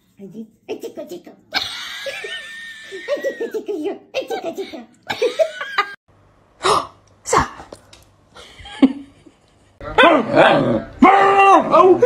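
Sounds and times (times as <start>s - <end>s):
laughter: 1.6s - 3.6s, 5.1s - 6.0s, 8.4s - 9.8s.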